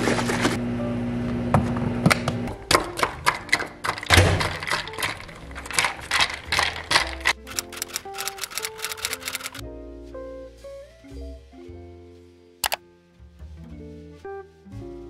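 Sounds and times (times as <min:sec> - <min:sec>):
music: 0:02.5 - 0:15.0
ice cubes clinking against glass: 0:02.7 - 0:09.6.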